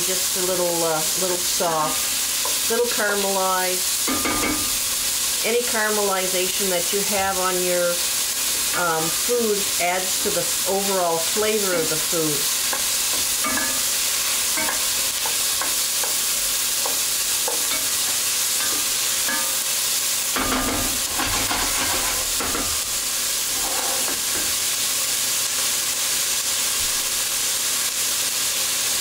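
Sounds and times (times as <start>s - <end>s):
onions sizzling in oil: 0.0s - 29.0s
spoon knocking on pan: 4.1s - 4.8s, 12.7s - 19.6s, 20.4s - 22.8s
wooden spoon scraping pan: 23.4s - 24.5s.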